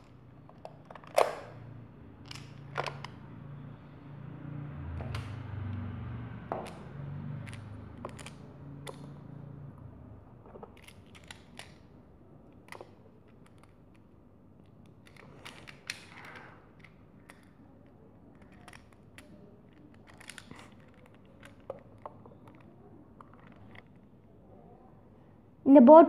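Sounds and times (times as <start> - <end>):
plastic tiles clicking together: 7.4 - 9.2, 12.5 - 23.9.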